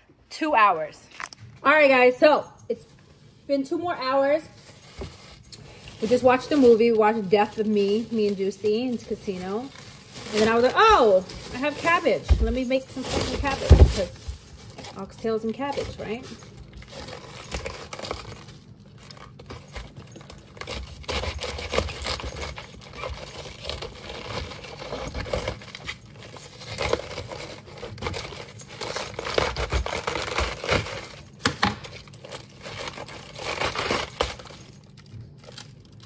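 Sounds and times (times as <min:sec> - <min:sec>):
cabbage leaves tearing: 0:04.4 - 0:36.0
cabbage leaves cracking: 0:13.0 - 0:36.0
knife cutting cabbage: 0:20.5 - 0:34.6.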